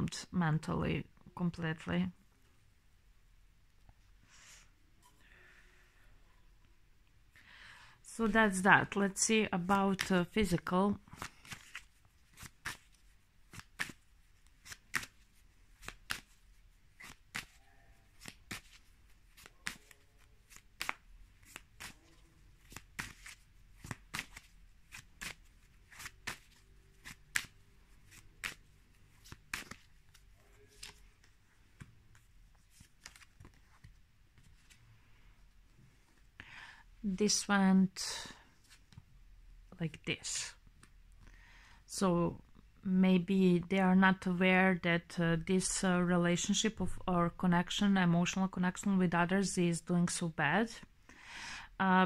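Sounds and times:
cards snapping while shuffled: 11.1 - 12.9, 13.5 - 14.0, 14.6 - 15.2, 15.8 - 16.4, 17.0 - 22.0, 22.6 - 28.6, 29.2 - 31.0.

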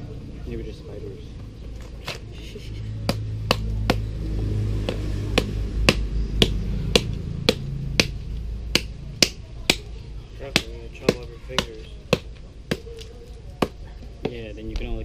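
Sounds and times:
machete knocking on coconut: 3.0 - 4.1, 4.8 - 13.0.

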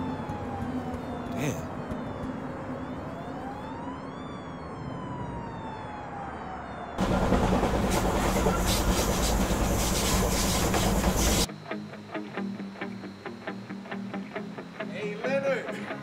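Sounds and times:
distant siren wailing: 0.0 - 14.9
train rushing past: 7.0 - 11.5.

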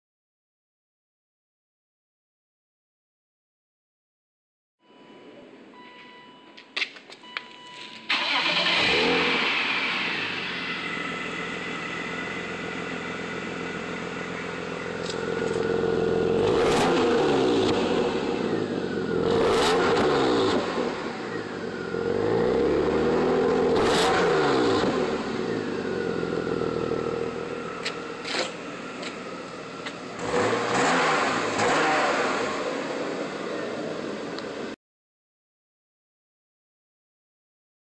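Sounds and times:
car engine idling and revving: 7.2 - 34.8.

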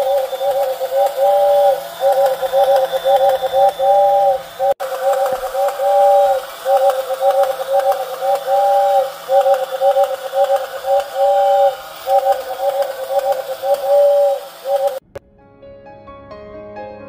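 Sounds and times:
toy train whistle tooting: 0.0 - 15.0
soft piano music: 15.2 - 17.0.

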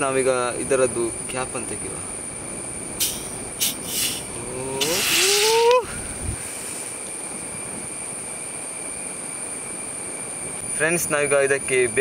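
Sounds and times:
carbonation hissing with whistle: 2.5 - 11.9.

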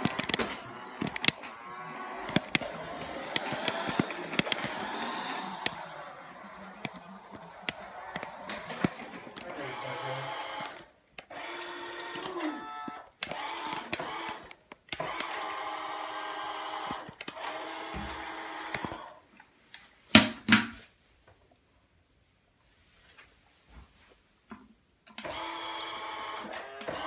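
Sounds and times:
toy car electric motor whining: 0.0 - 19.2, 25.2 - 27.0.

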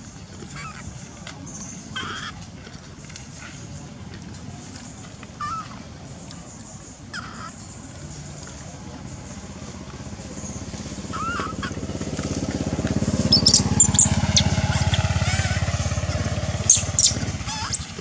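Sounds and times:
motor engine passing by: 0.0 - 18.0
monkeys squeaking: 0.4 - 2.4, 5.4 - 5.9, 7.1 - 7.8, 11.0 - 11.8, 13.2 - 18.0.

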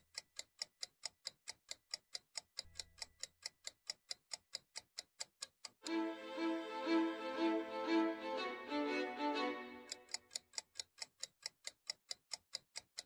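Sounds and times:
clockwork ticking: 0.0 - 13.0
orchestral string music: 5.9 - 10.1.

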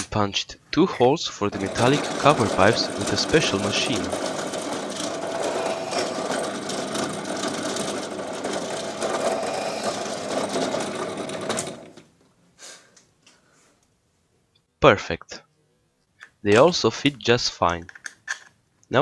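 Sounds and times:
drill press drilling through steel: 1.5 - 12.0.

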